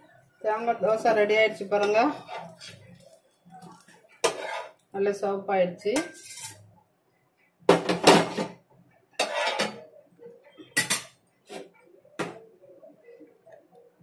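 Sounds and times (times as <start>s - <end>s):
metal utensils clattering: 3.7s - 4.8s, 6.0s - 6.6s, 9.2s - 9.9s, 10.7s - 11.7s.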